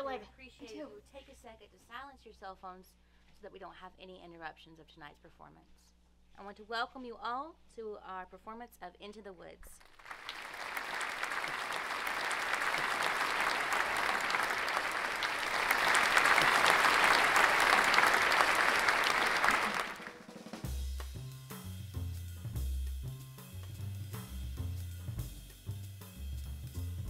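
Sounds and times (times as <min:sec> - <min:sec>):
audience applause: 0:09.9 - 0:20.6
music with drums and bass: 0:20.2 - 0:27.0.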